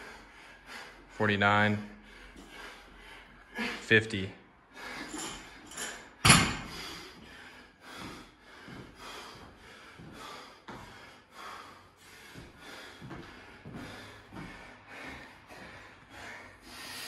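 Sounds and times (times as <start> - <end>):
heavy breathing: 0.0 - 17.0
barbell dropped on floor: 6.2 - 6.7.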